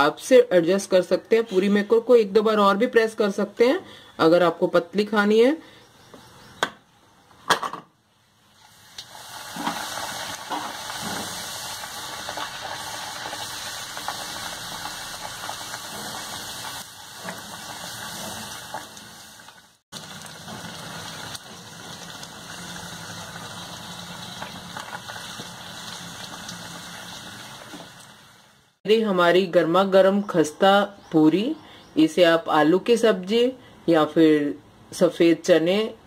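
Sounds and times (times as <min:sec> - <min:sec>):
food deep-frying in hot oil: 0:08.5 - 0:28.8.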